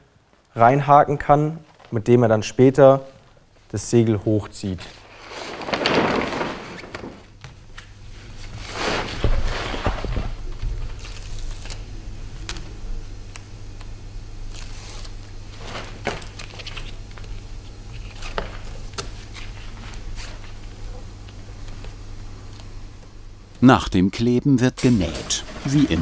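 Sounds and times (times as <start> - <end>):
steady low hum: 0.0 - 26.0
cloth crinkling rustles: 4.9 - 10.2
short tearing sounds: 11.0 - 12.6, 14.5 - 17.0.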